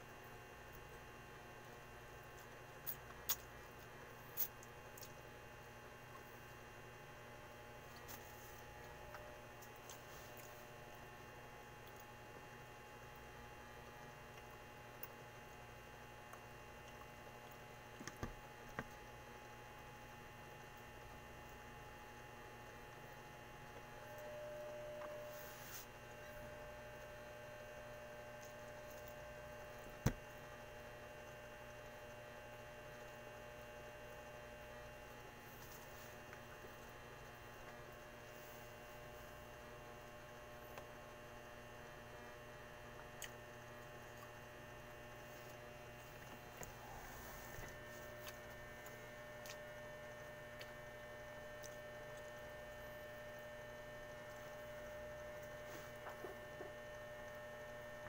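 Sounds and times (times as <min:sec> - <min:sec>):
electrical hum: 0:00.0 - 0:58.0
clicks and smacks of eating: 0:01.6 - 0:05.3, 0:16.2 - 0:19.6, 0:42.9 - 0:44.5, 0:48.1 - 0:49.8, 0:50.5 - 0:50.9, 0:51.5 - 0:52.5.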